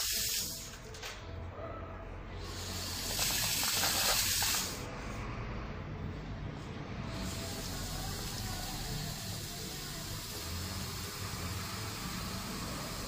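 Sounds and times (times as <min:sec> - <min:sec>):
water hissing through filter housing: 0:00.0 - 0:00.6, 0:02.5 - 0:04.8.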